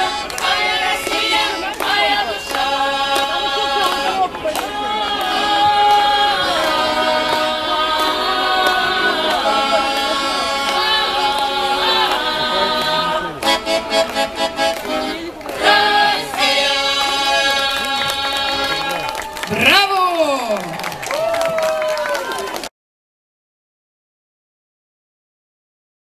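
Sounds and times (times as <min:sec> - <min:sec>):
mixed choir singing: 0:00.0 - 0:19.2.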